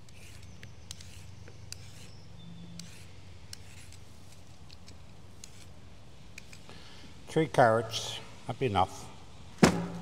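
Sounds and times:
vegetable peeler scraping carrot: 0.0 - 5.8.

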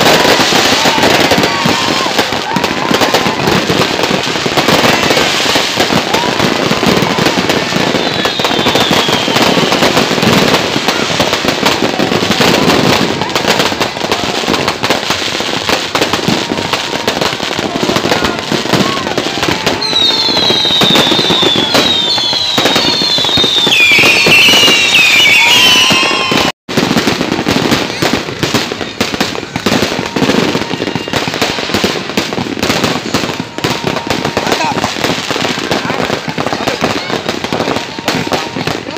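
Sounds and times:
fireworks crackling and banging: 0.0 - 38.9
firework whistles gliding down: 4.6 - 11.3, 19.6 - 26.6.

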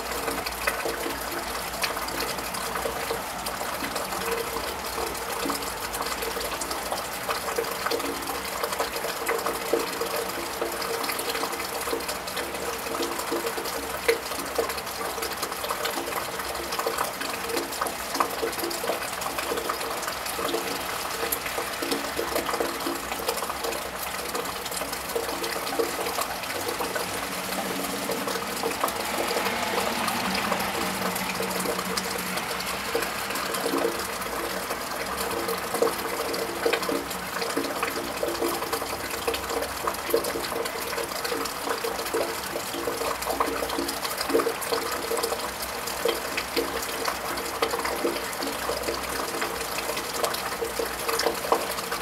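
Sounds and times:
rain pattering on tiled roof: 0.0 - 52.0
car tyres hissing on wet road: 26.1 - 37.3.

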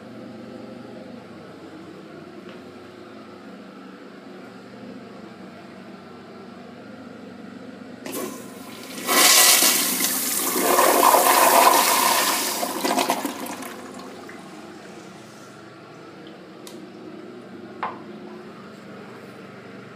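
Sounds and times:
toilet water rushing: 8.1 - 14.5.

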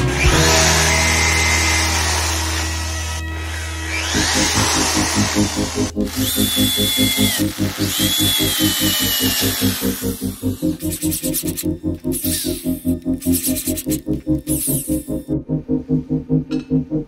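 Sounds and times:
electric drill motor: 0.0 - 15.2
drill bit squealing on metal: 0.7 - 15.2
background music with beat: 10.5 - 17.0.

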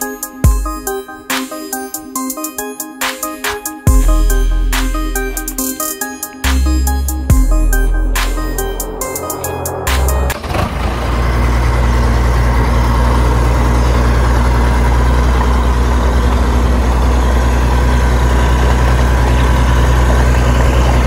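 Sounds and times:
heavy engine idling: 3.9 - 21.0.

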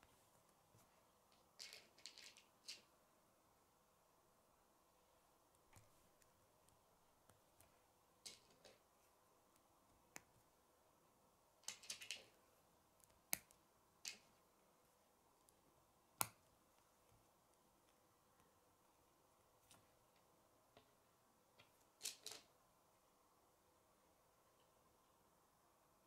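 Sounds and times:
plastic pieces clicking together: 11.6 - 12.3, 22.0 - 22.5.

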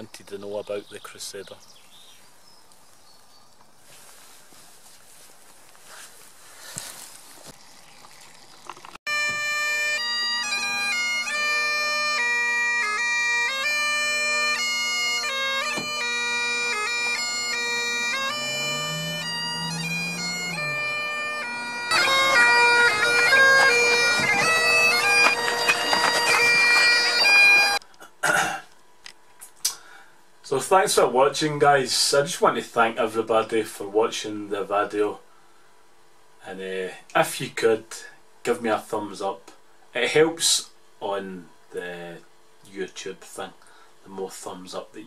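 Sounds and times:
bagpipes playing: 9.1 - 27.8.

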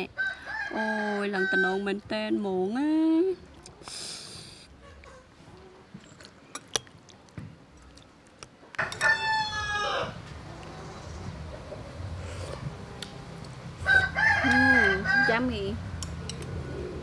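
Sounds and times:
rooster crowing: 0.2 - 1.9, 8.8 - 10.3, 13.8 - 15.7.

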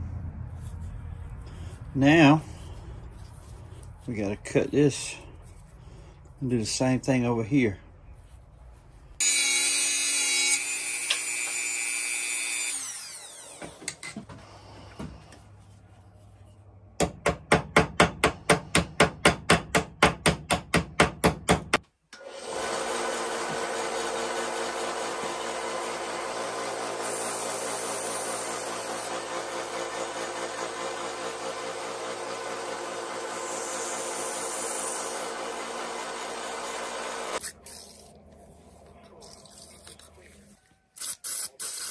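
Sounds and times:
belt sander grinding: 9.2 - 14.0, 22.2 - 37.5.

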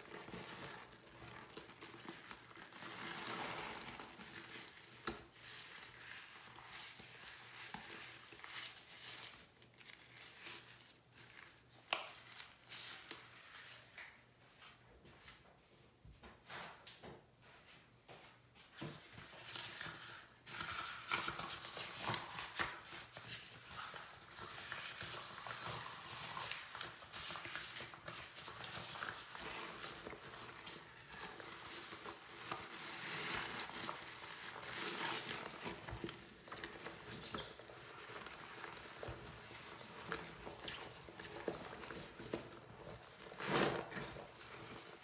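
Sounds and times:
wet squishing and squelching: 24.4 - 43.4.

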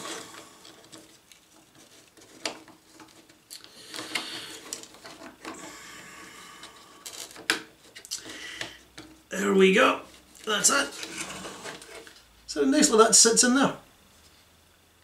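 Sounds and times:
plastic rubbing and scraping: 0.0 - 8.4, 10.0 - 12.2.

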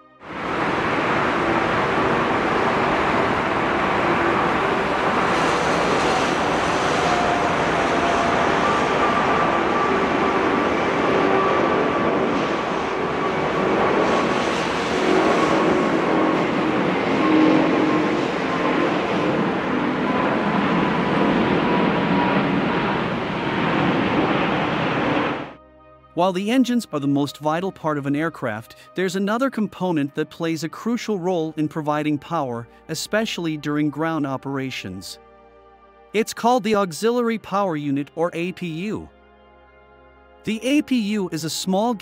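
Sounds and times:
jet engines at takeoff thrust: 0.2 - 25.6.

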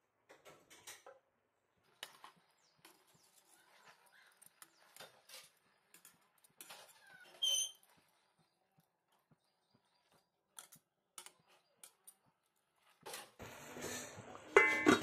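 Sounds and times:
chicken crackling in a pot: 0.3 - 15.0
metal tongs clicking on pot: 10.6 - 12.2.

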